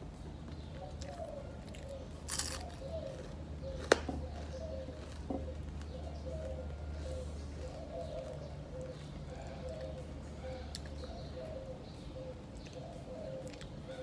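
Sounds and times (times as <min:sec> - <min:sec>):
faint chewing: 0:00.4 - 0:11.6, 0:12.4 - 0:14.0
crunchy rustle: 0:00.7 - 0:09.4.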